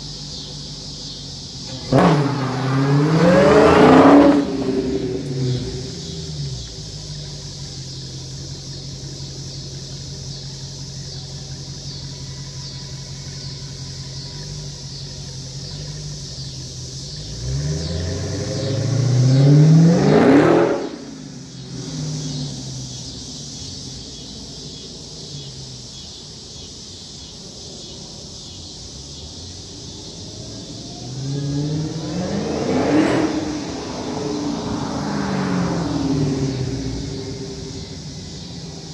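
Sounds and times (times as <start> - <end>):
car engine accelerating past: 1.6 - 7.8, 16.4 - 23.7, 29.8 - 38.9.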